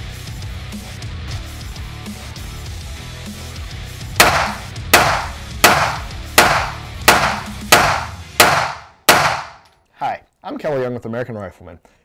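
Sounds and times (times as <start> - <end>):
music: 0.0 - 9.5
pistol shots echoing: 4.2 - 9.6.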